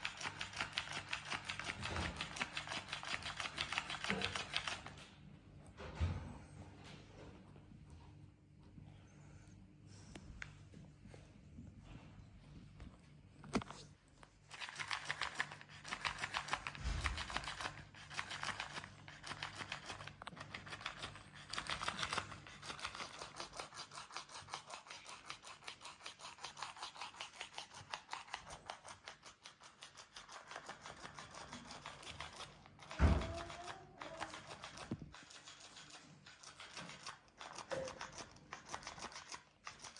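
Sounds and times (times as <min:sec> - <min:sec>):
toy motor clicking rattle: 0:00.0 - 0:05.0, 0:14.5 - 0:39.9.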